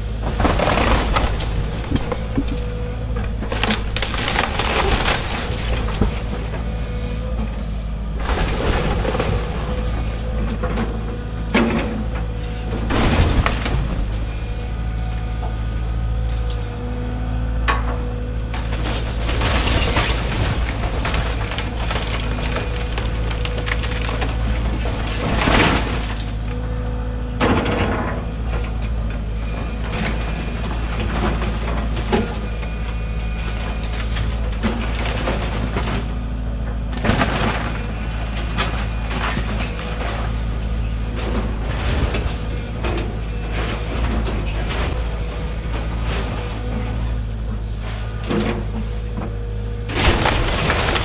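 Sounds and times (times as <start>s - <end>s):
structure crashing: 0.0s - 7.5s, 8.1s - 14.8s, 17.9s - 26.6s, 27.3s - 51.0s
wood cracking and splintering: 0.0s - 14.7s, 18.4s - 26.6s, 27.4s - 49.2s, 49.8s - 51.0s
excavator diesel engine running: 0.0s - 51.0s.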